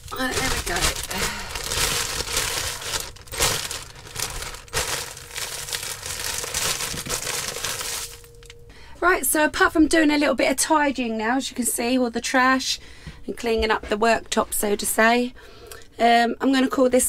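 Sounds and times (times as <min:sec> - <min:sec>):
plastic bag crinkling: 0:00.0 - 0:08.5
sachets rustling: 0:00.0 - 0:08.5.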